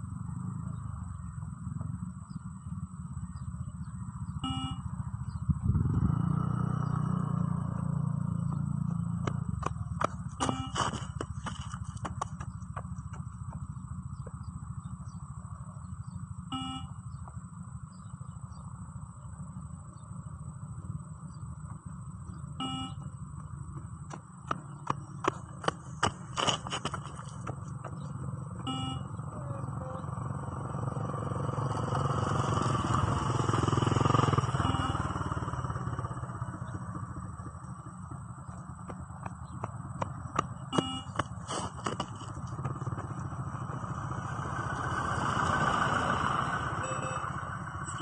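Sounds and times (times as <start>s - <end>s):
steady low rumble: 0.0s - 48.0s
short electronic beep: 4.4s - 4.9s, 10.4s - 11.0s, 16.5s - 17.0s, 22.6s - 23.1s, 28.7s - 29.2s, 34.5s - 35.3s, 40.7s - 41.2s, 46.8s - 48.0s
car driving past: 5.7s - 13.8s, 26.0s - 48.0s
running footsteps on concrete: 8.5s - 14.4s, 23.3s - 28.7s, 36.3s - 44.0s.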